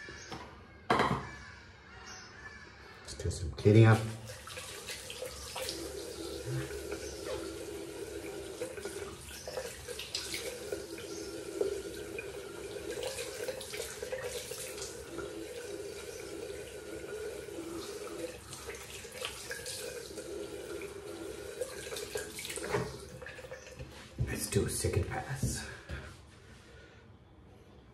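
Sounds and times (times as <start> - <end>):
tap running into sink: 21.5 - 24.5.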